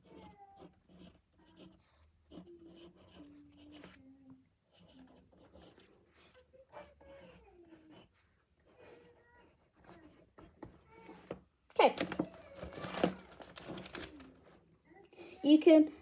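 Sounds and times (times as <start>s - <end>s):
drawing strokes scratching paper: 0.0s - 11.3s.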